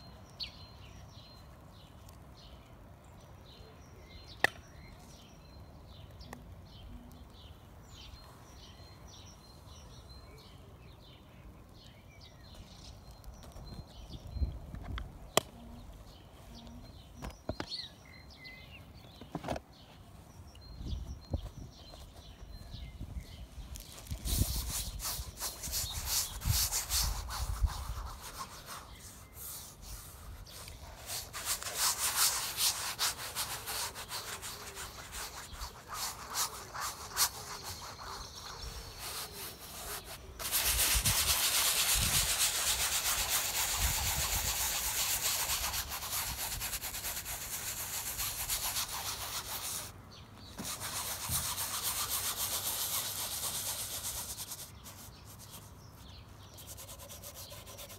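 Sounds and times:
paintbrush rubbing on canvas: 23.8s - 49.9s, 50.6s - 57.9s.

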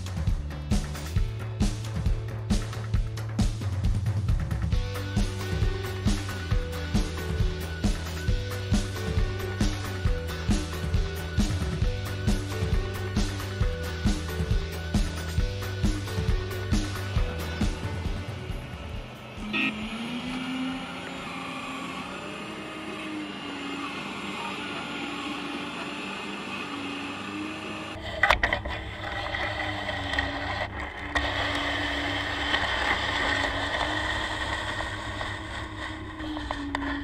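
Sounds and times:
bucket working in soil: 28.0s - 37.0s.

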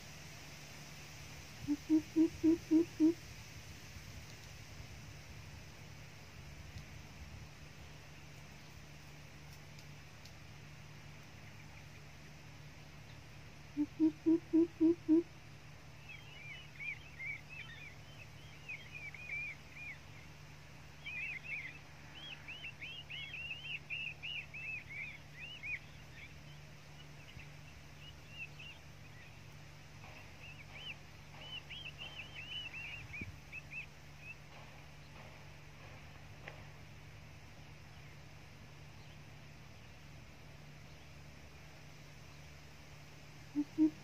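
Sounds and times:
steady low hum: 0.0s - 44.0s
deep bird hoots: 1.6s - 3.2s, 13.7s - 15.3s, 43.5s - 44.0s
small bird chirping: 21.0s - 35.2s, 43.5s - 44.0s.

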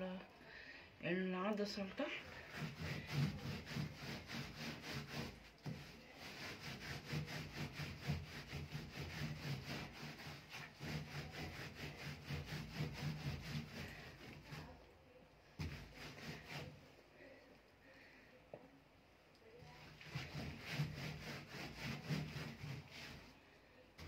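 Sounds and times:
cloth scrubbing metal panel: 2.0s - 14.8s, 15.6s - 16.9s, 19.6s - 23.4s.

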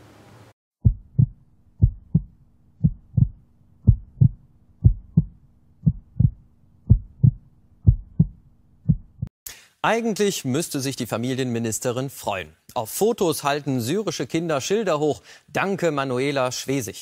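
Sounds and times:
faint low hum: 0.0s - 9.3s
heartbeat thumps: 0.8s - 9.3s.

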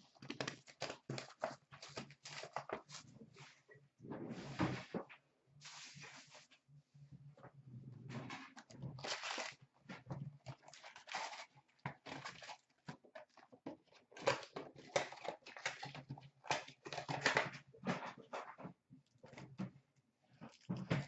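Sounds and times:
plastic wrap crinkling and tearing: 0.1s - 3.1s, 8.9s - 9.6s, 10.4s - 13.2s.

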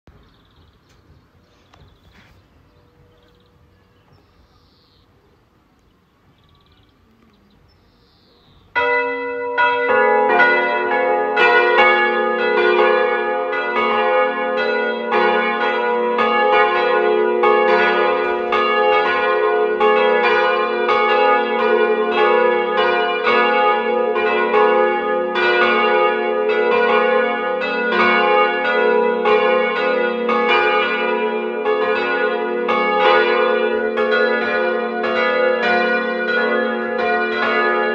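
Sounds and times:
church bells ringing: 8.6s - 37.9s.

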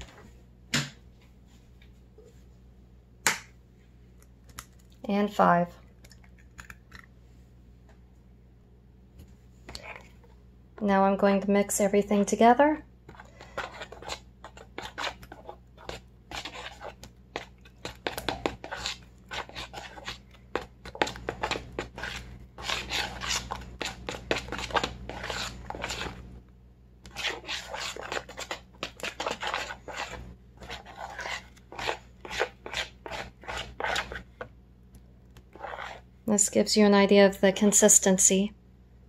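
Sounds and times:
fork beating batter in bowl: 13.0s - 26.3s, 27.0s - 34.6s, 35.4s - 36.1s.

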